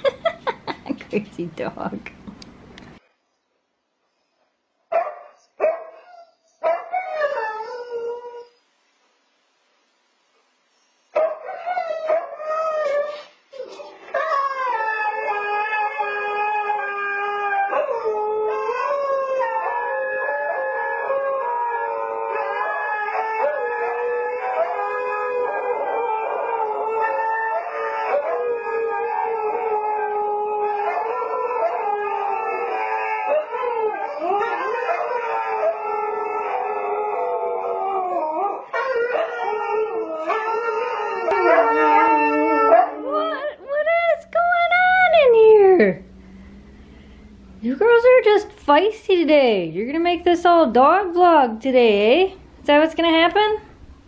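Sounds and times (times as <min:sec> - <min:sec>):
dogs howling: 0:11.2 - 0:13.2, 0:14.0 - 0:45.9.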